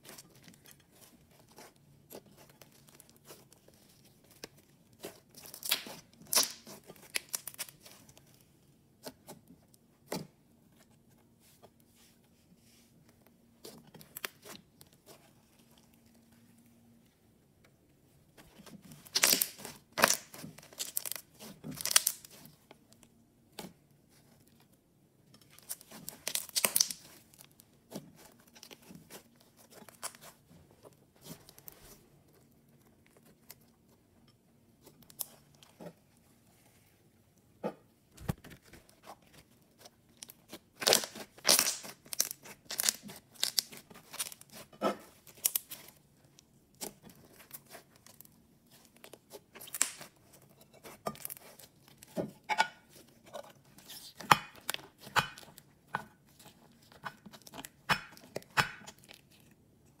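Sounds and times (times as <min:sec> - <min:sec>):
slime crackling and popping: 0:05.0 - 0:08.0, 0:19.0 - 0:22.5, 0:25.5 - 0:27.5, 0:39.8 - 0:46.0, 0:46.8 - 0:52.1.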